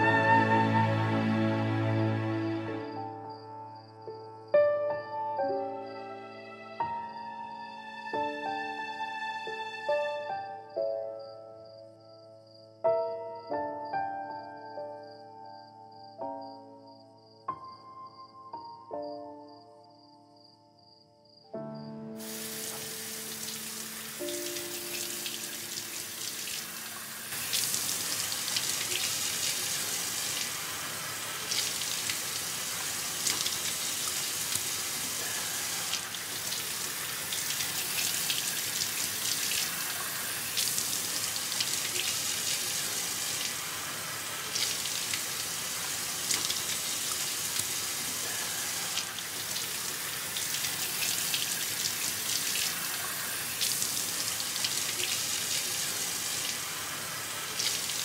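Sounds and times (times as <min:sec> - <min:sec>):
water running into sink: 0:22.2 - 0:58.0.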